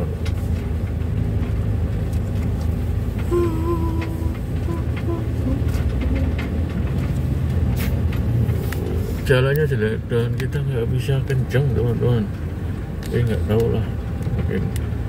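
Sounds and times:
light rattles and knocks: 0.0s - 15.0s
van engine and road rumble: 0.0s - 15.0s.

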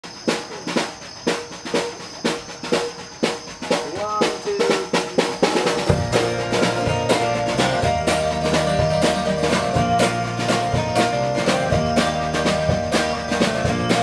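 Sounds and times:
drum kit beat: 0.0s - 14.0s
full band playing: 0.1s - 14.0s
bent guitar notes: 4.0s - 14.0s.

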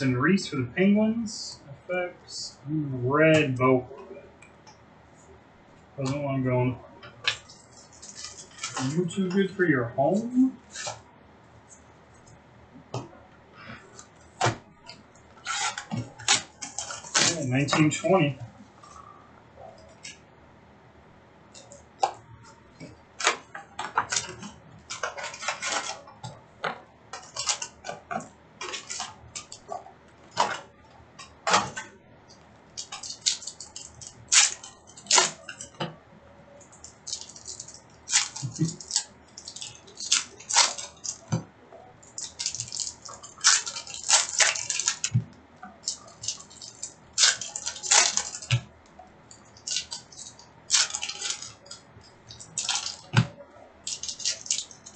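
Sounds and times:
wrappers crinkling and rustling: 7.2s - 11.0s, 27.1s - 35.9s, 36.6s - 54.9s.

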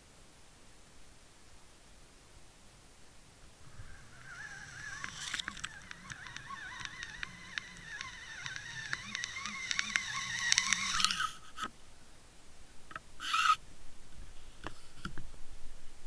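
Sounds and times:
wavering whistle-like whine: 3.6s - 11.3s
sharp clicks: 3.9s - 11.7s.

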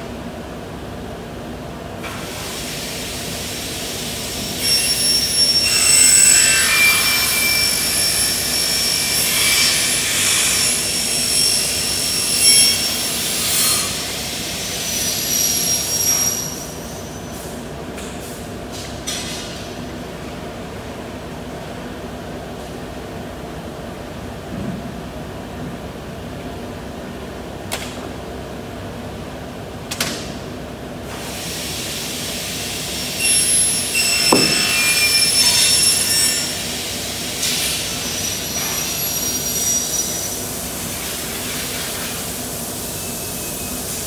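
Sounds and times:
glass cutter scoring glass: 33.2s - 36.5s.

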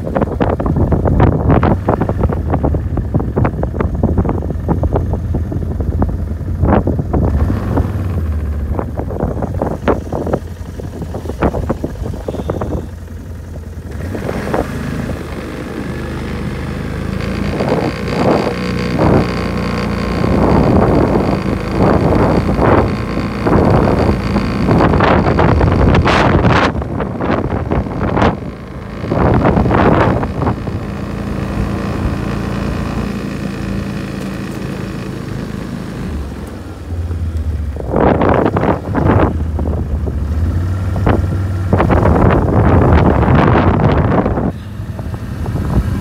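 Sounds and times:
wind gusting across microphone: 0.0s - 46.0s.

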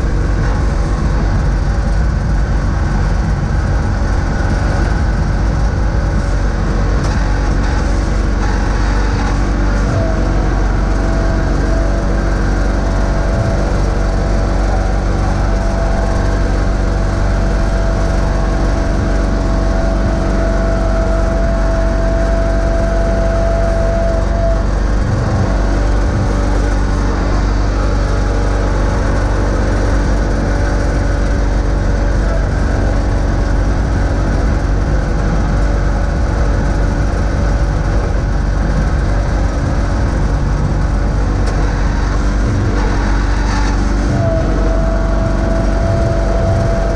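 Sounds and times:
steady whine: 0.0s - 46.9s
tractor engine running: 0.0s - 46.9s.

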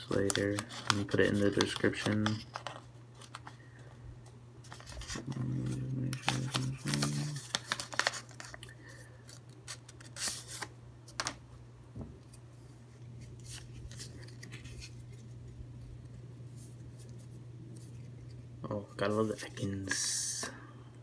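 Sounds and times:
paper wrapper crinkling: 0.0s - 3.6s, 4.6s - 10.7s
steady low hum: 0.0s - 21.0s.

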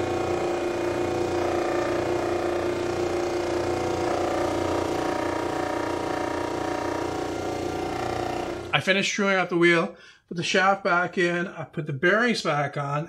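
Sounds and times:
wood sanding against disc: 0.0s - 8.7s
disc sander motor hum: 0.0s - 8.8s.

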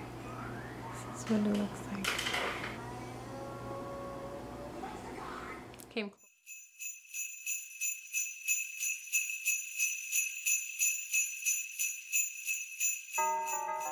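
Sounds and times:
sleigh bells jingling: 6.2s - 13.9s.

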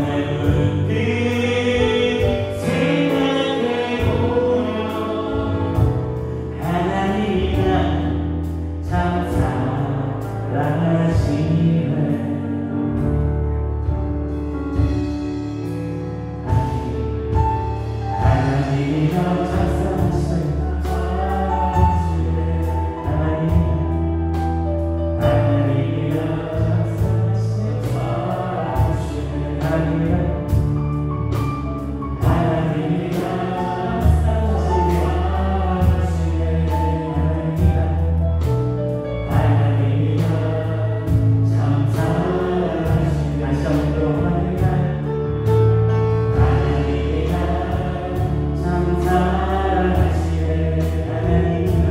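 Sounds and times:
live band playing gospel music: 0.0s - 51.9s
drum and cymbal hits: 13.9s - 23.8s
voices singing: 39.2s - 45.1s, 46.2s - 51.9s.

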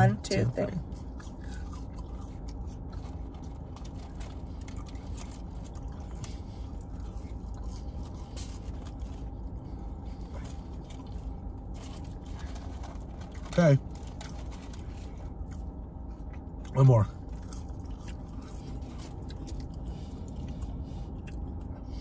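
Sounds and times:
car cabin hum: 0.0s - 22.0s
chewing crunchy fries: 0.0s - 22.0s.

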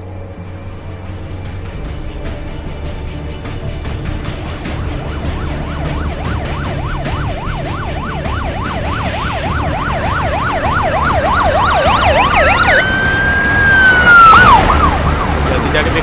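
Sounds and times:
low rumble: 0.0s - 10.0s
steady siren tone: 4.2s - 15.6s
police siren yelping: 4.6s - 16.0s.

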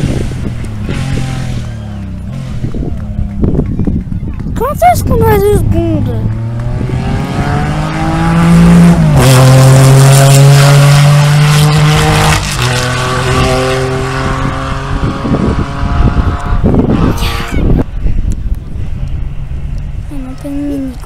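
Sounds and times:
rally car engine revving: 0.0s - 4.0s, 6.2s - 17.9s
rush of noise: 0.0s - 21.0s.

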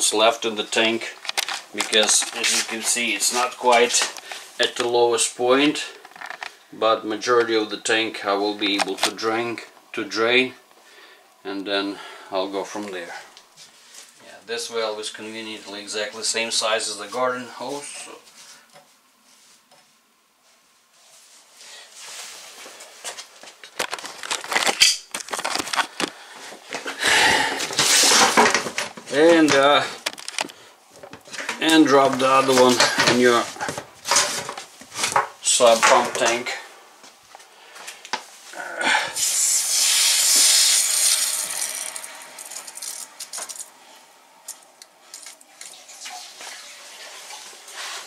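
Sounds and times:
water rushing into hose hissing: 39.1s - 43.1s, 45.5s - 48.0s.

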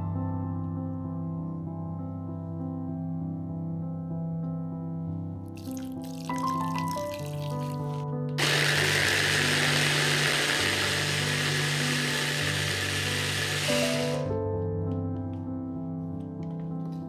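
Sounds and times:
background music: 0.0s - 17.0s
electric hand blender whirring: 8.4s - 14.3s.

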